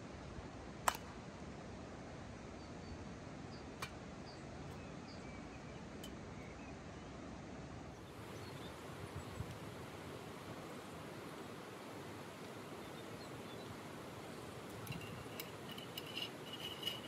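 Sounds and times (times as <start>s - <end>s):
outdoor background noise: 0.0s - 17.0s
sharp clicks: 0.9s - 1.1s.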